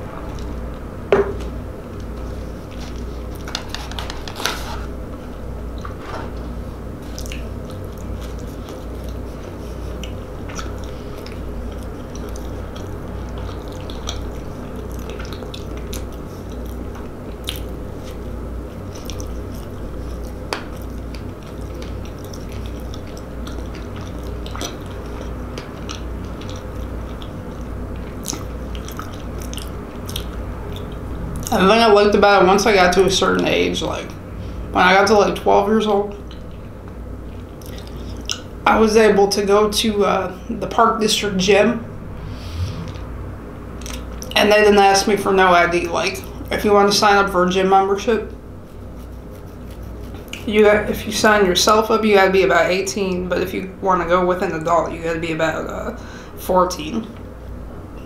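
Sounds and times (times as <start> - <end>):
steady low hum: 0.0 - 58.0
chewing with wet mouth clicks: 7.0 - 31.6, 36.1 - 38.5, 43.8 - 44.4, 48.7 - 50.5.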